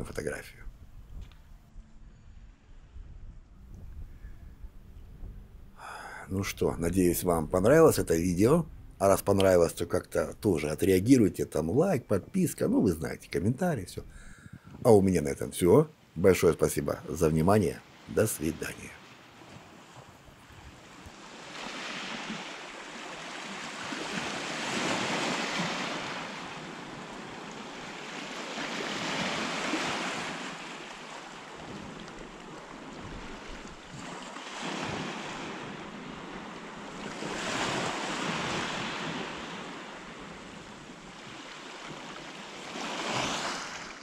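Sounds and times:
surf washing onto shore: 17.1 - 44.0.

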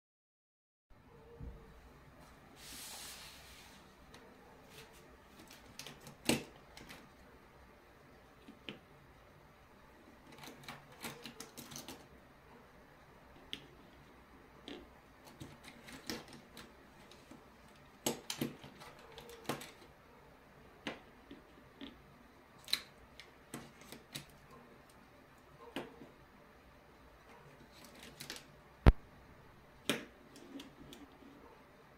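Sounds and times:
pens clicking and clacking: 10.2 - 12.1, 14.6 - 19.9.

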